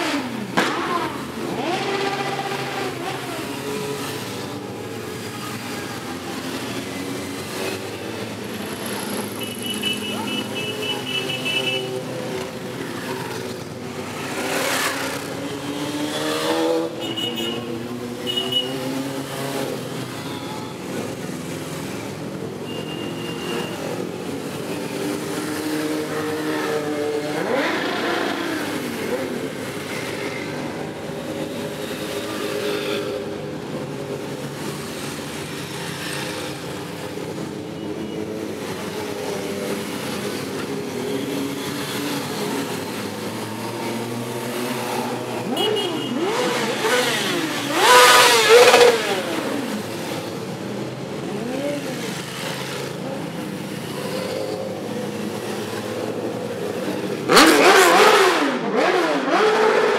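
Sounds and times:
motorcycle engines revving: 0.0 - 59.9
motorcycles riding past: 38.4 - 59.9.

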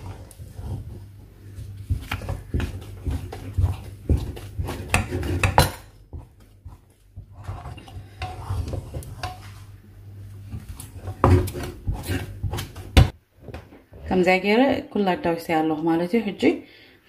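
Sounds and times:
wooden spoon stirring dough: 0.0 - 13.2.

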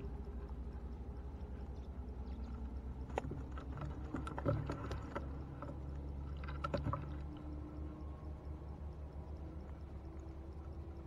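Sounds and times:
steady low rumble: 0.0 - 11.0.

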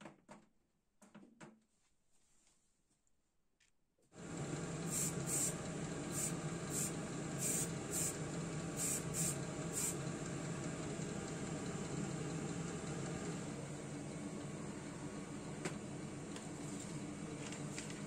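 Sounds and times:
extractor fan humming: 4.2 - 18.0
spray paint hissing bursts: 4.9 - 8.2, 8.8 - 10.0.

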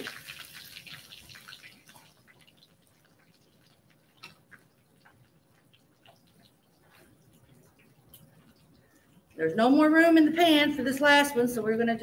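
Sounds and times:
chicken frying in oil: 0.0 - 9.4.

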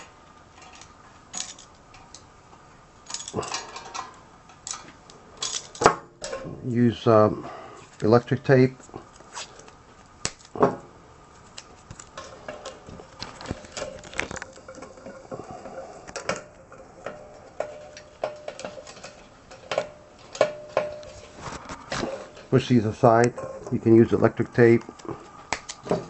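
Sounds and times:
wires clicking and rustling: 0.0 - 6.4, 11.3 - 23.8.

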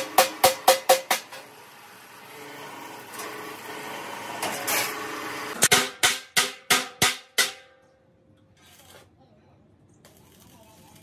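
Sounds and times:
hammer striking steel tank: 0.0 - 1.5, 5.6 - 7.9.

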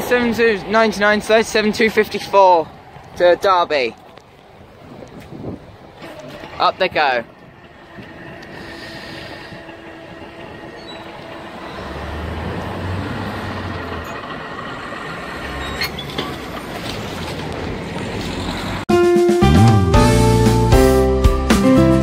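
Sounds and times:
low engine rumble: 3.9 - 18.8.

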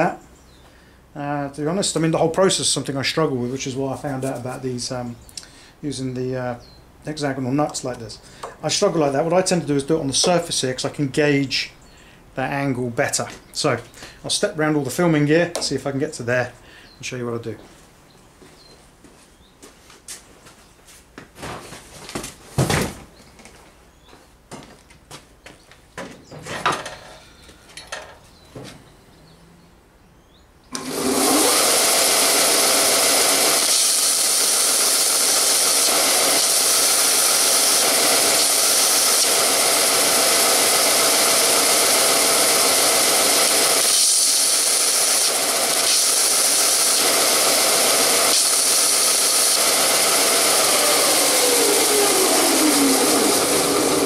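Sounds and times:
belt sander running: 30.7 - 54.0
drill bit grinding on belt: 30.8 - 54.0.

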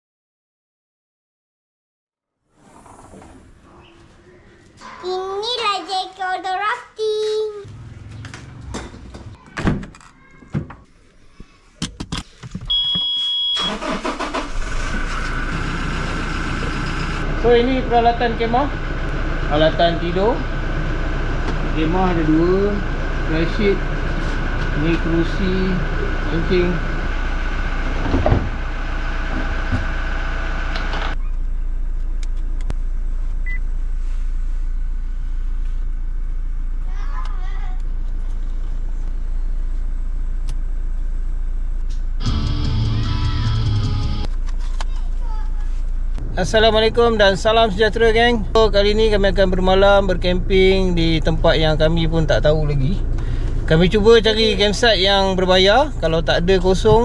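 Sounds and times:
ignition beep: 12.7 - 14.3, 33.4 - 33.7
car engine starting and idling: 13.6 - 33.8, 46.1 - 57.0.

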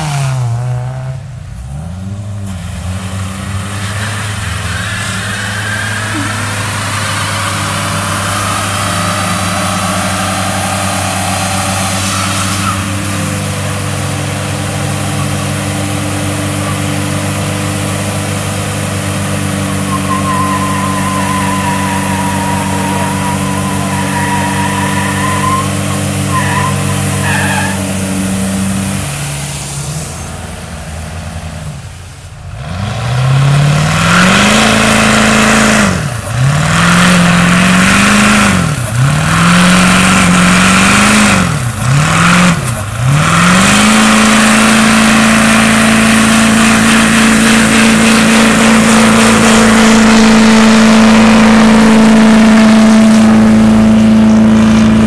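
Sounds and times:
car engine revving: 0.0 - 55.0
tyres spinning on wet road: 1.7 - 55.0
high wavering squeal: 3.8 - 28.7.

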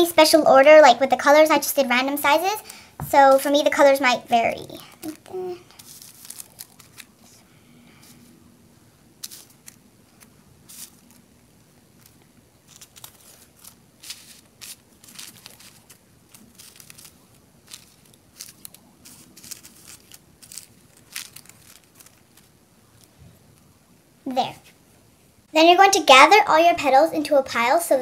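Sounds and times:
tissue paper crinkling: 5.0 - 7.4, 9.2 - 11.4, 12.0 - 23.7.

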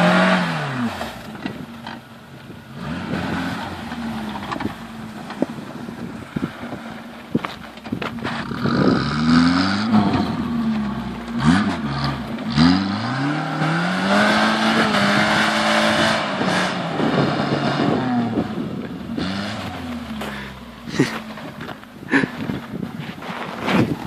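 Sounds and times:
engine revving under load: 0.0 - 1.5, 2.7 - 6.8, 8.2 - 21.5.

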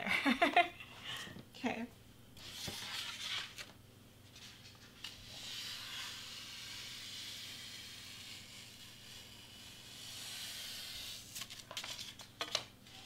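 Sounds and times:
craft knife cutting foam board: 4.9 - 11.5.

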